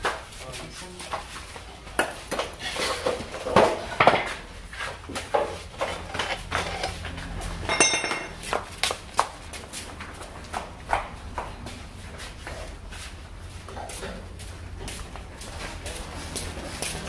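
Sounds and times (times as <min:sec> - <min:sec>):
bright metallic ring: 0:07.7 - 0:08.4
metallic clinks of hand tools: 0:07.7 - 0:08.4.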